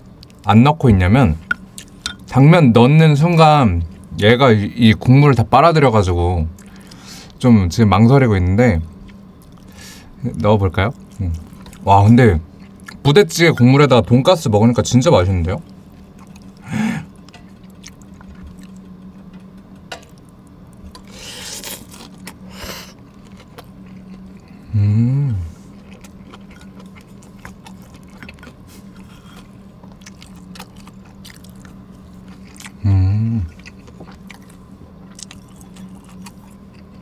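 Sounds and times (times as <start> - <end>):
chewing food: 8.9 - 13.1, 15.3 - 24.7, 25.4 - 37.0
person humming mm: 24.4 - 25.6, 32.7 - 33.6.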